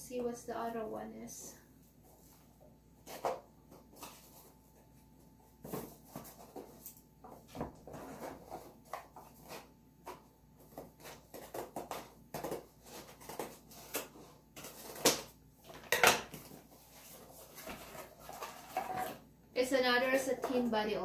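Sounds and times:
sharp cardboard sounds: 7.9s - 19.2s.

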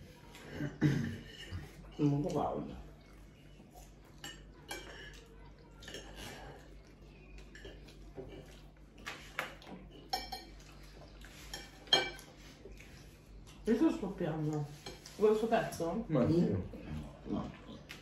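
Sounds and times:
cutlery clinking on plates: 4.2s - 6.4s, 7.5s - 12.4s.

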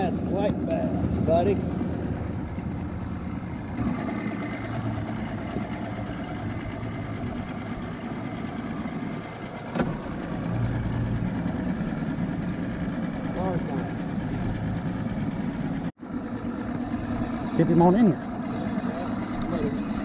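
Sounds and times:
boat engine idling: 0.0s - 20.0s.

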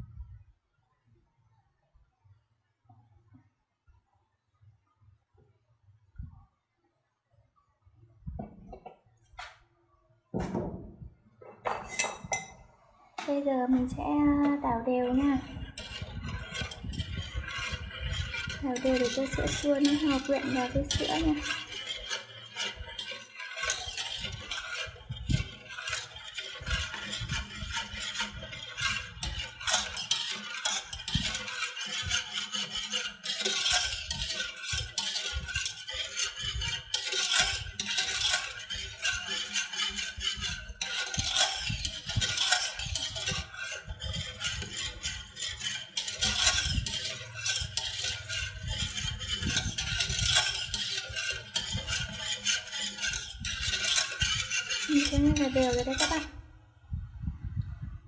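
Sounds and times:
whisk swishing in metal pot: 11.5s - 12.6s, 13.3s - 57.9s
whisk wires clicking against pot: 13.2s - 56.4s.

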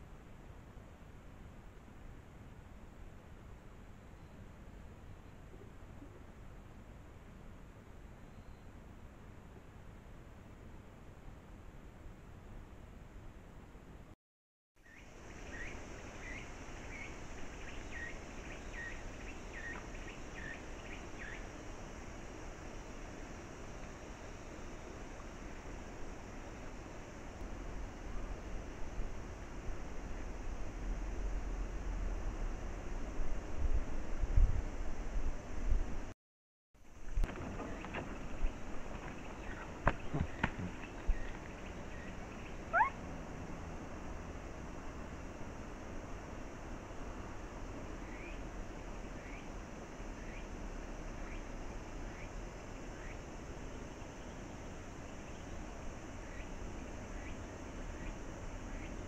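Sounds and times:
microphone hiss: 0.0s - 14.2s, 14.8s - 36.2s, 36.8s - 59.0s
high insect hum: 14.8s - 36.1s, 36.8s - 59.0s
monkey call rising in pitch: 42.5s - 43.0s.

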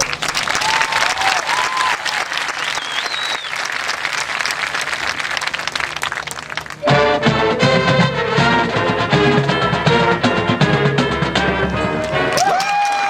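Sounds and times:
stadium crowd applauding and cheering: 0.0s - 7.0s, 11.8s - 13.0s
whoops: 0.6s - 3.4s, 12.3s - 13.0s
shrill whistle: 2.6s - 3.6s.

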